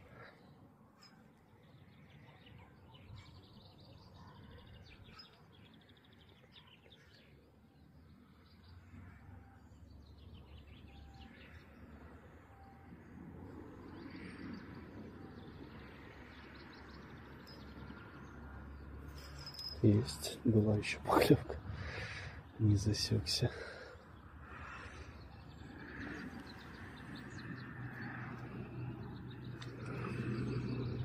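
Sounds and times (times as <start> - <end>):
songbirds trilling and chirping: 0.0 - 31.0.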